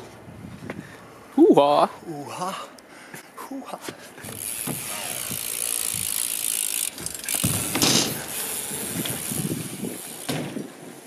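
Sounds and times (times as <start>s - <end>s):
bike tyre noise: 4.0s - 11.0s
freewheel hub clicking: 4.2s - 10.4s.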